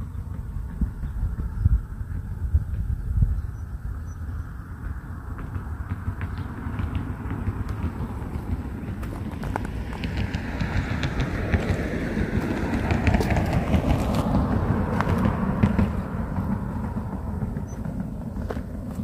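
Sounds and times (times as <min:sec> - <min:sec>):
low rumble: 0:00.0 - 0:19.0
footsteps on gravel: 0:06.8 - 0:19.0.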